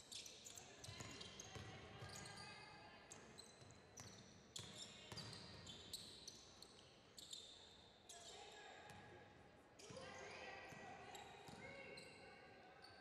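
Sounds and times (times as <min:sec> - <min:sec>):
sneaker squeaks: 0:00.1 - 0:08.3, 0:11.0 - 0:13.0.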